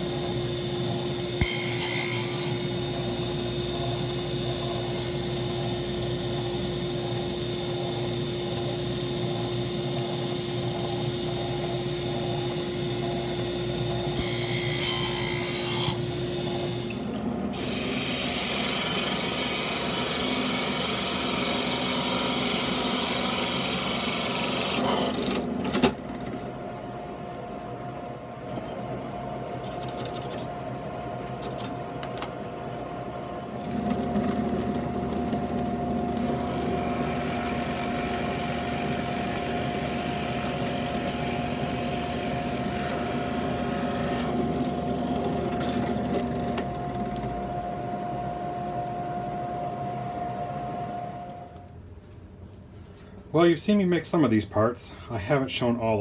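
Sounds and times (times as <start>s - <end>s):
drill press whine: 0.0s - 51.8s
drill press cutting wood: 1.4s - 3.2s, 14.1s - 25.5s, 36.2s - 46.4s.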